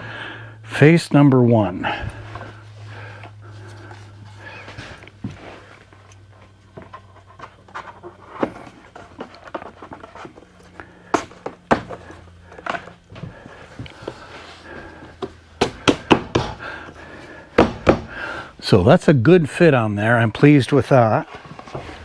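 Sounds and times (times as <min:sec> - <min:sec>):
wooden knocks and thuds: 0:11.1 - 0:13.4, 0:15.2 - 0:16.6, 0:17.5 - 0:18.2.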